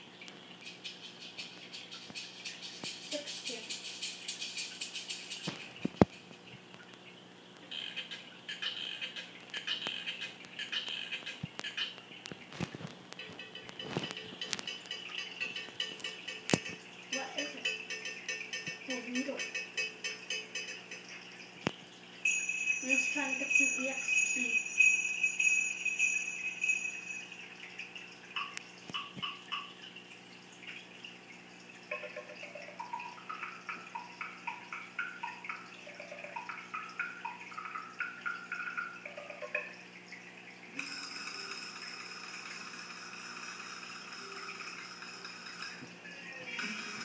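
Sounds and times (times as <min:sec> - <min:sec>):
sleigh bells shaking: 0:22.2 - 0:27.4.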